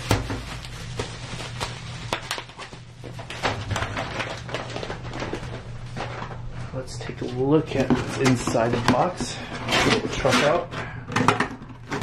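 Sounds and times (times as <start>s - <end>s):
plastic bags crinkling: 0.0s - 6.5s.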